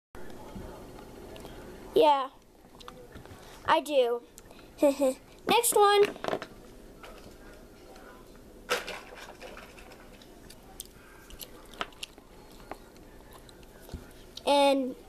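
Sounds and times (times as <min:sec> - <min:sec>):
plastic toys rustling: 0:08.7 - 0:10.4.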